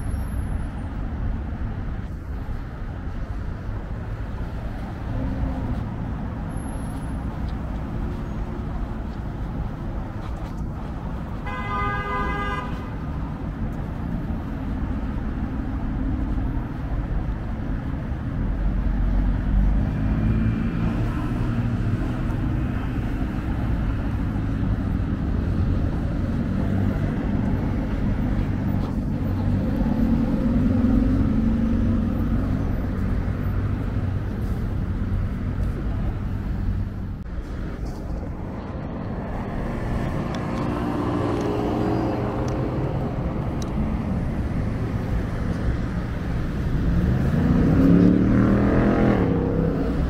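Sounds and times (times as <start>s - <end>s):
rumble of passing cars: 0.0s - 50.0s
vehicle horn honking: 11.4s - 12.9s.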